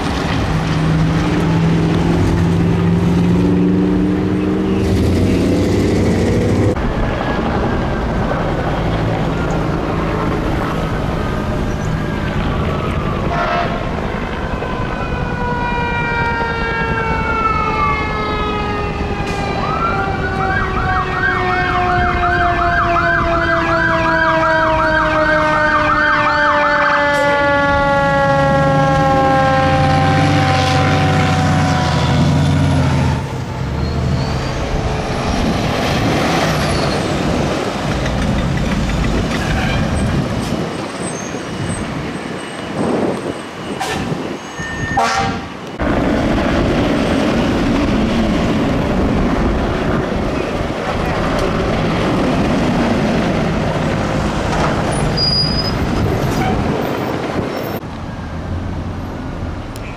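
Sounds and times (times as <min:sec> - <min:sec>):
fire truck engine: 0:00.0 - 0:59.9
road noise: 0:00.0 - 0:59.9
electronic yelp siren: 0:11.3 - 0:35.0, 0:41.0 - 0:45.9
siren tones sliding down: 0:14.3 - 0:35.4.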